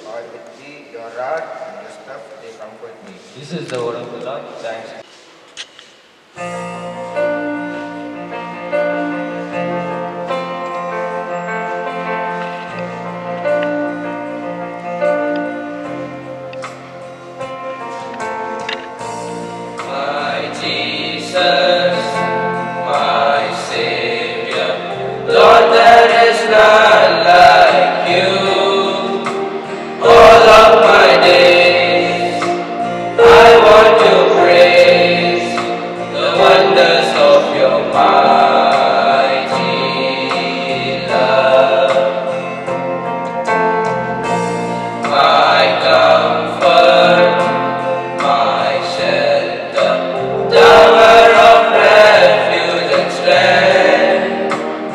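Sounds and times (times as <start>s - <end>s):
boys singing together: 19.8s - 42.5s, 45.0s - 54.9s.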